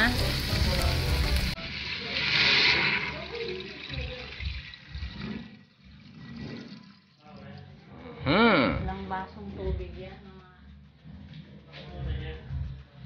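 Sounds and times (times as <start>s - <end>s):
hissing burst: 0.0s - 3.3s
meat sizzling in a pot: 0.0s - 7.3s
water poured into hot pot: 0.0s - 7.7s.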